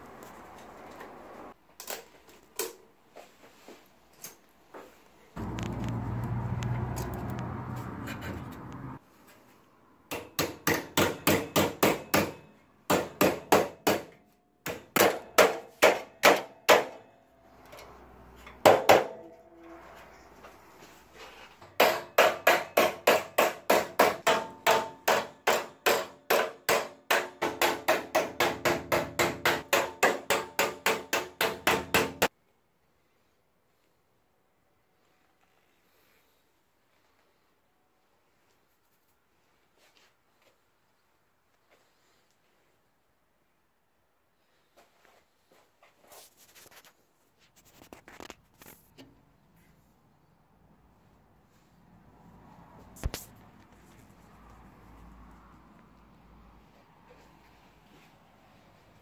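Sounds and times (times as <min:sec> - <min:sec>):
hammer tapping on sheet steel: 0:10.1 - 0:17.0, 0:18.6 - 0:19.4, 0:21.7 - 0:32.3.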